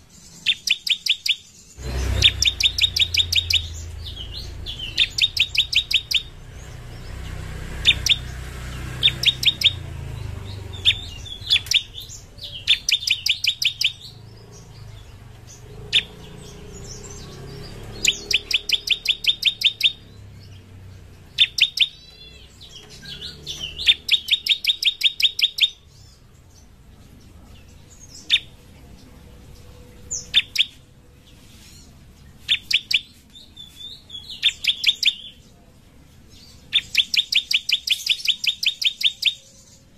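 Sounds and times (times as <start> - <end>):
bird rapid chip notes: 0.4 - 7.0, 7.8 - 14.3, 15.5 - 20.1.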